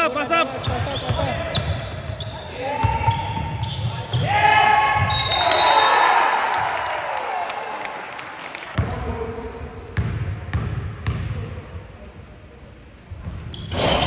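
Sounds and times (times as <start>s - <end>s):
basketball bouncing on court: 0.6s - 4.3s, 9.8s - 11.5s.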